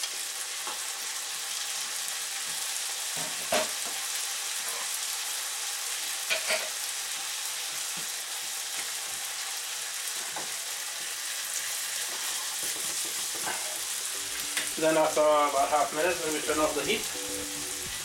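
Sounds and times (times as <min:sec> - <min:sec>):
food sizzling in a frying pan: 0:00.0 - 0:18.0.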